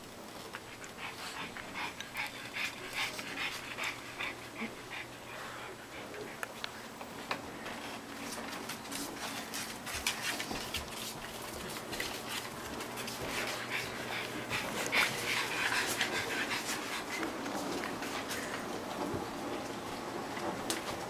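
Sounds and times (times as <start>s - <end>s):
dog panting: 0.4s - 6.8s, 9.0s - 18.8s.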